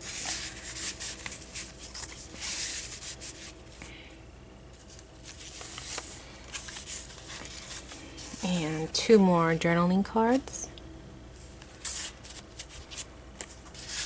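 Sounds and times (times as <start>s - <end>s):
pages turning: 0.0s - 3.6s, 4.8s - 8.4s, 11.6s - 14.0s
paper and card rustling: 0.0s - 3.9s, 4.8s - 8.8s, 11.4s - 14.0s.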